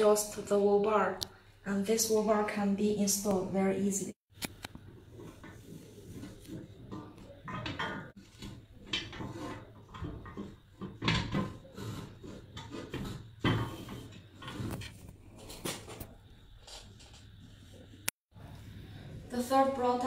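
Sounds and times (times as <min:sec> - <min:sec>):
metal knocks and rubs: 0:04.8 - 0:18.0
metal bar sliding and scraping: 0:05.1 - 0:17.9.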